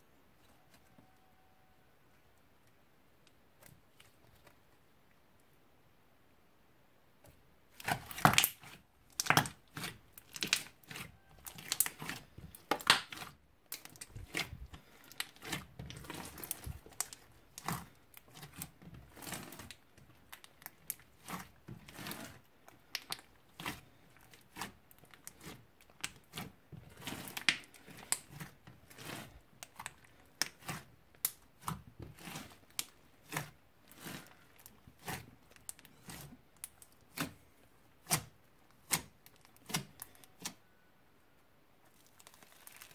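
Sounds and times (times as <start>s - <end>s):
slime crackling and popping: 7.7s - 37.4s, 41.8s - 42.9s.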